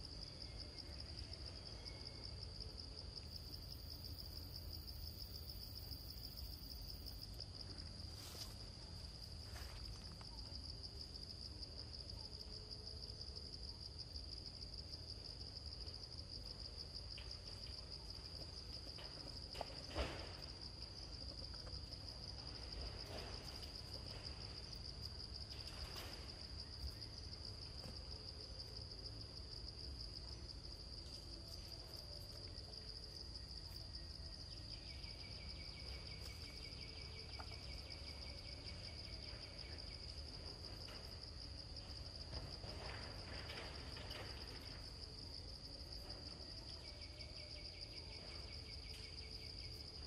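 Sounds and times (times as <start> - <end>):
insect chorus: 0.0 - 50.0
pulsing lower insect call: 20.4 - 41.1.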